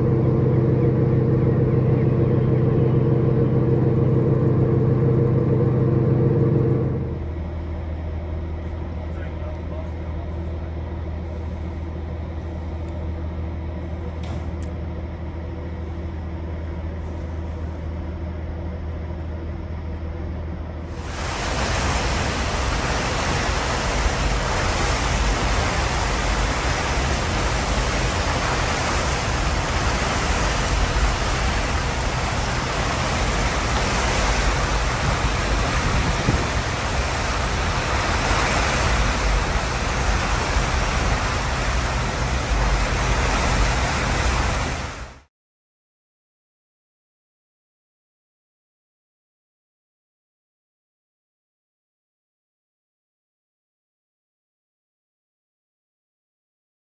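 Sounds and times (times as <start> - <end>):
low machinery hum: 0.0 - 45.2
churning water rushing: 20.9 - 45.3.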